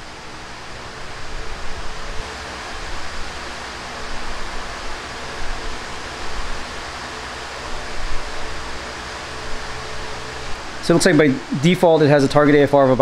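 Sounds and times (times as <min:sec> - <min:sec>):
steady rushing air noise: 0:00.0 - 0:13.0.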